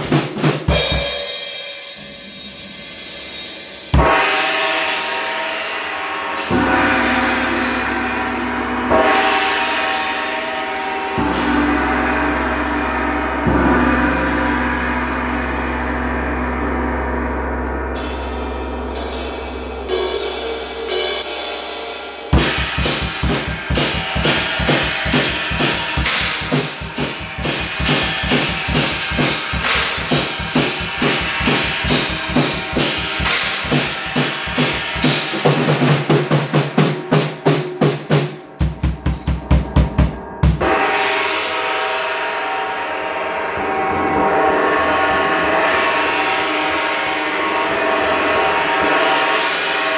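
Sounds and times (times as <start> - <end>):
drum kit played fast: 0.0 - 5.2, 20.1 - 41.0
gong ringing: 6.4 - 37.1, 38.5 - 49.9.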